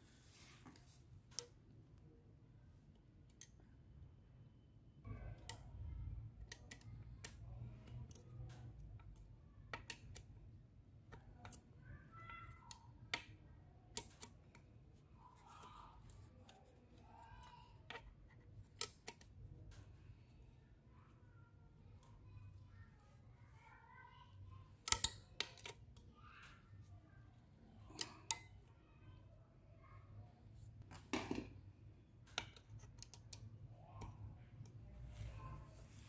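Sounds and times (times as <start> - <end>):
screwdriver clicking on metal: 24.8 - 25.8.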